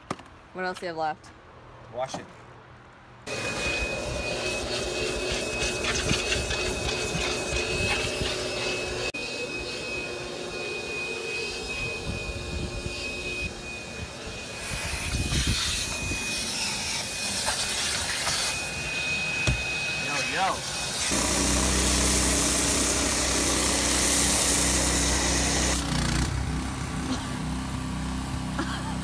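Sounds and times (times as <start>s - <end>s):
pressure washer spraying water: 3.3s - 26.3s.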